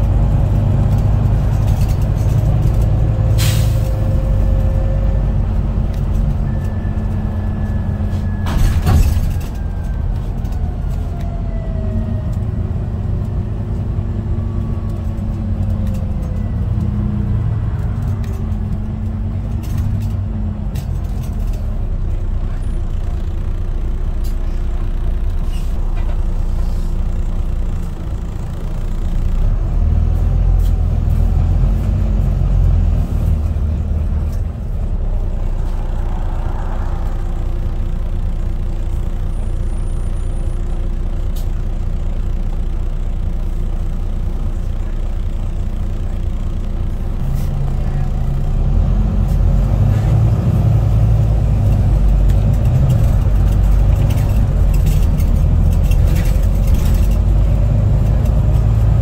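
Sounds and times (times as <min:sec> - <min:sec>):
bus engine and road rumble: 0:00.0 - 0:59.0
air brakes hiss: 0:03.4 - 0:03.9.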